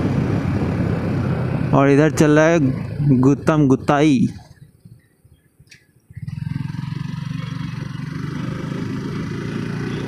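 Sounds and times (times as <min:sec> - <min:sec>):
wind and road noise: 0:00.0 - 0:10.0
motorcycle engine running: 0:06.1 - 0:10.0.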